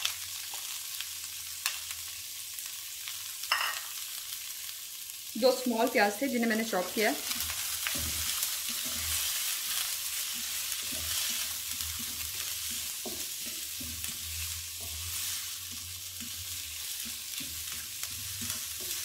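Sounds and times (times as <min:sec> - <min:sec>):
onions sizzling in oil: 0:00.0 - 0:19.0
wooden spatula scraping pan: 0:07.2 - 0:19.0.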